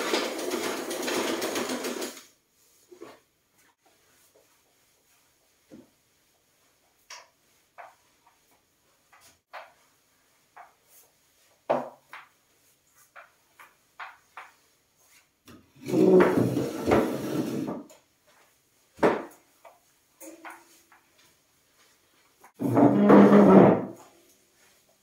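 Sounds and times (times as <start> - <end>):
chair scraping across tiled floor: 0.0 - 2.3, 15.1 - 18.0, 22.4 - 24.3.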